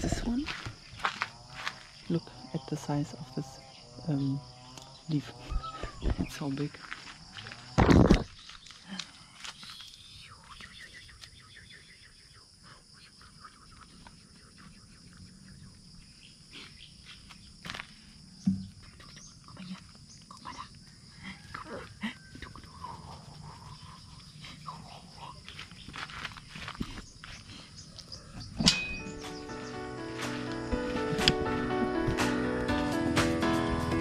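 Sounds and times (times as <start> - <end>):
quiet rural background: 0.0 - 34.0
puppy scuffs and taps on dirt: 28.6 - 32.3.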